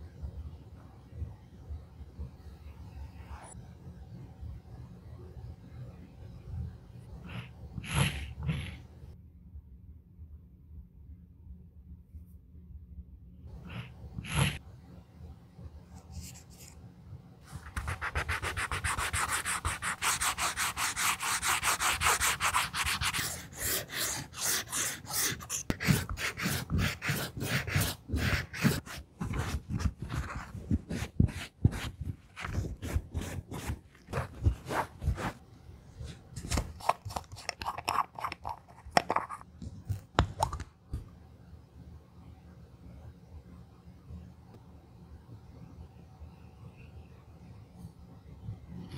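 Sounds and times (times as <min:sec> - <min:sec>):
sandpaper rubbing: 0:17.6 - 0:35.4
cloth rubbing strokes: 0:27.6 - 0:36.7.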